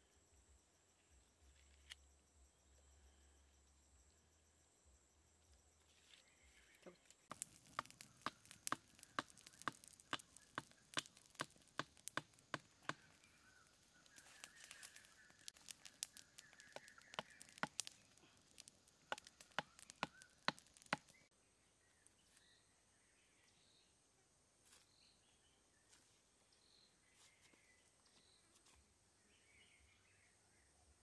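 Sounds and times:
dry leaves fire crackling: 5.9 - 22.5
sharp pops of fire: 7.2 - 21.3.

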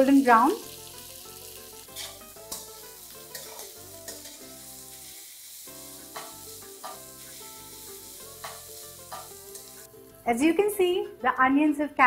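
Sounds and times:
onions sizzling in oil: 0.0 - 10.8
metal spatula scraping pan: 1.9 - 2.7, 3.3 - 4.4.

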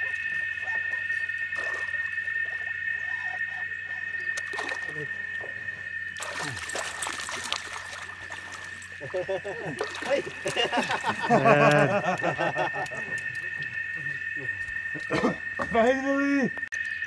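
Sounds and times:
fish thrashing and splashing: 4.3 - 5.1, 6.2 - 11.4.

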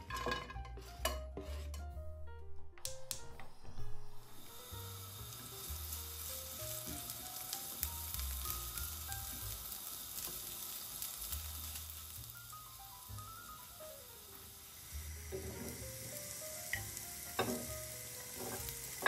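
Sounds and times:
soft background music: 0.0 - 19.0
garlic and ginger sizzling in oil: 4.1 - 19.0.

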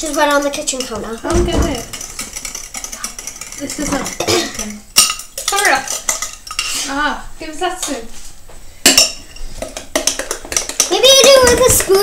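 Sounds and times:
metal spoon clinking in jug: 0.0 - 6.8
sharp knocks: 1.3 - 2.0.

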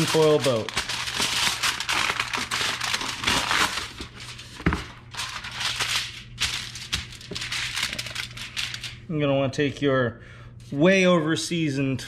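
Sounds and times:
aluminum foil crinkling: 0.0 - 9.0
foil torn from roll: 0.0 - 9.0.

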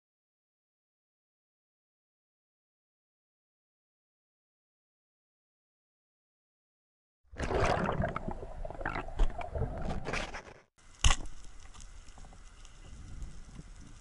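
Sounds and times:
underwater water movement: 7.3 - 14.0
faint crackling: 8.8 - 14.0.

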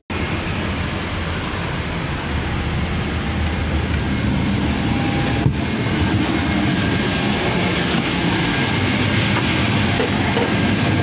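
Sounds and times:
machinery hum: 0.1 - 11.0.

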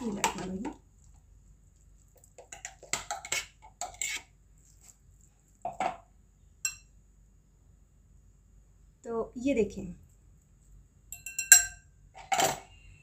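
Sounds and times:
metal clinking on glass: 11.1 - 12.6.

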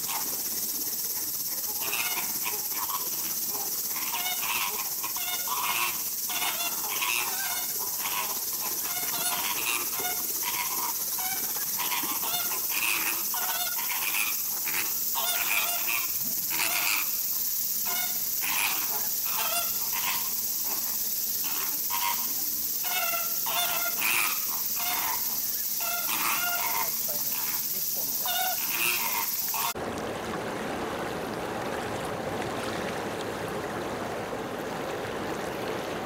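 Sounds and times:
steady high hiss: 0.0 - 29.8
flamingos honking: 1.7 - 3.1, 4.0 - 17.2, 17.8 - 29.8.

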